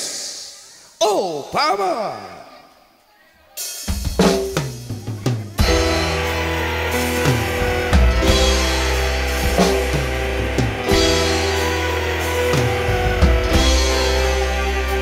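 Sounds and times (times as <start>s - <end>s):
band playing: 3.6s - 15.0s
drum strokes: 3.9s - 14.2s
bass and keyboard notes: 4.2s - 15.0s.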